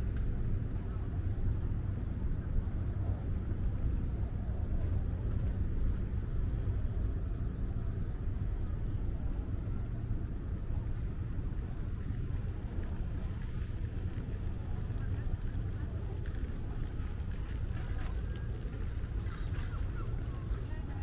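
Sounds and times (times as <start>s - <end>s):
ferry engine idling hum: 0.0s - 21.0s.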